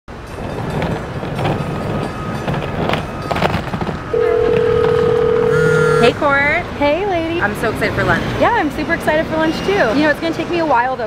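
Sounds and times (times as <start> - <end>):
busy city street noise: 0.1 - 11.0
telephone ringback tone: 4.1 - 6.2.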